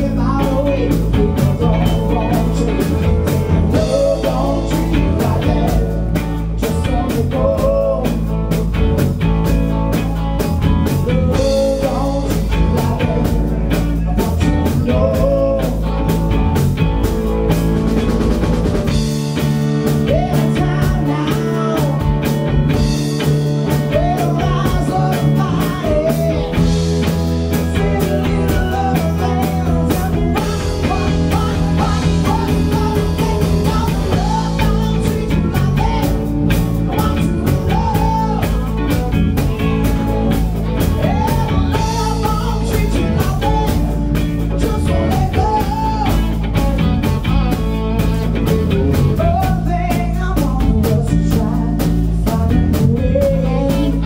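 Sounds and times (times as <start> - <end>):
drum kit beat: 0.0 - 54.0
electric guitars: 0.0 - 54.0
woman singing: 3.7 - 8.3, 20.0 - 22.1, 23.9 - 26.6, 27.6 - 46.5, 49.1 - 54.0.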